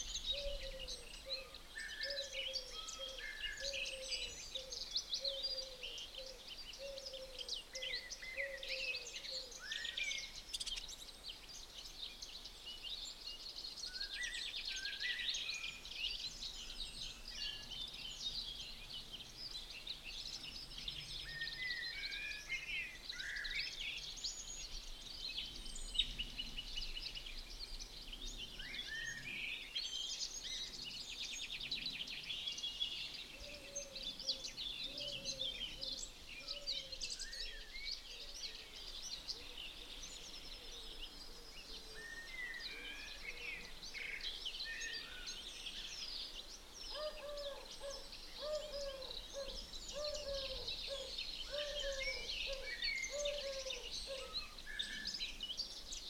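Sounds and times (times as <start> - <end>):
small birds chirping and trilling: 0.0 - 56.0.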